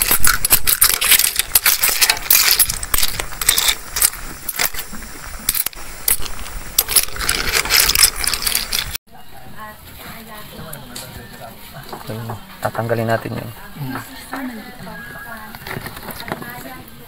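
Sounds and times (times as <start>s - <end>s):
shellfish clattering in a pot: 0.0s - 9.0s.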